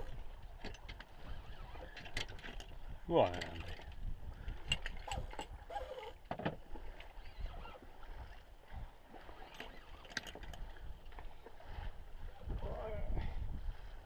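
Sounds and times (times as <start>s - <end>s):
water lapping against boat hull: 0.0s - 14.0s
short clicks and creaks: 0.6s - 2.7s.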